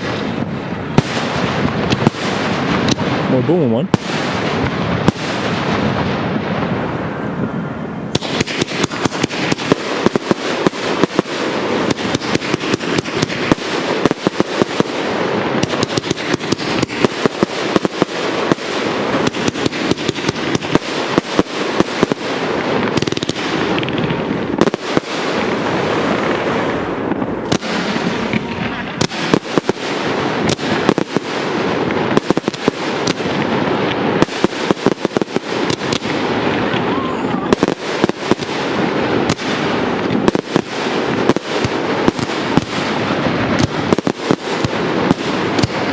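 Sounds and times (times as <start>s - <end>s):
fireworks crackle: 0.0s - 45.9s
firework shells bursting: 8.1s - 45.9s.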